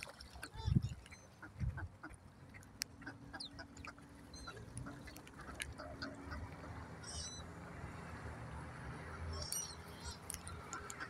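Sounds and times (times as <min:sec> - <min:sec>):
ducks splashing on water: 0:00.0 - 0:11.0
ducks calling: 0:00.4 - 0:07.5.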